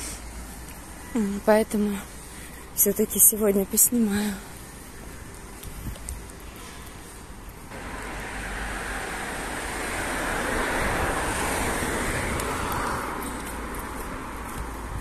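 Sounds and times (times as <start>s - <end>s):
vehicle passing: 7.7s - 15.0s.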